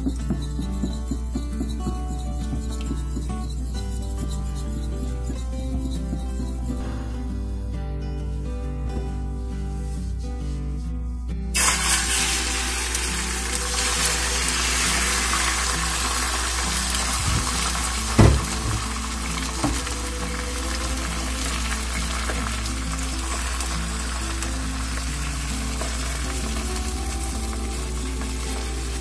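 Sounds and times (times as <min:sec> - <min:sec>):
background music: 0:00.0 - 0:29.0
egg sizzling in oil: 0:11.6 - 0:29.0
single knock: 0:18.2 - 0:18.9.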